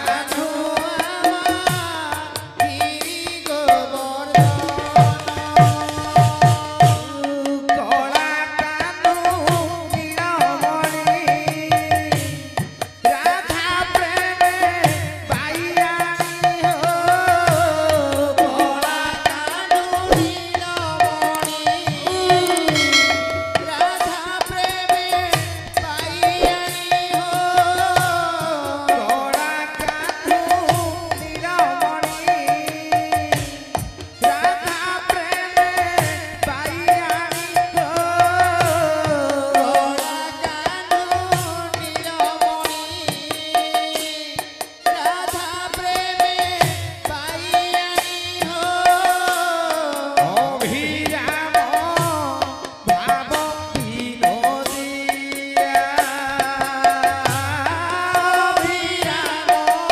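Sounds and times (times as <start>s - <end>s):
hand drum rhythm: 0.0s - 59.9s
person singing: 0.0s - 59.9s
hand cymbals: 9.4s - 59.9s
keyboard melody: 20.0s - 24.7s.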